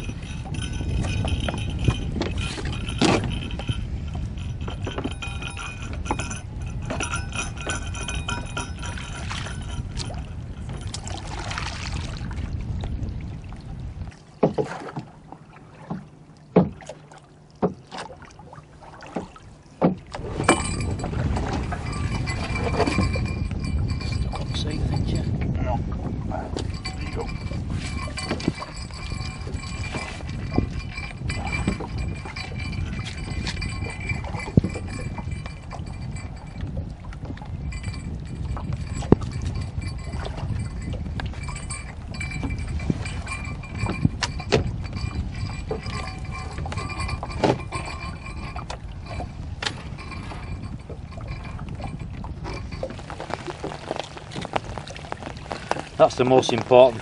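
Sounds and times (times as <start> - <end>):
faint ringing tones: 0.0 - 11.0, 20.4 - 25.8, 26.6 - 53.9
fishing poles knocking on wooden boat: 0.0 - 11.2, 14.4 - 17.0, 17.6 - 18.2, 19.1 - 57.0
low rumble of wind and water: 0.0 - 57.0.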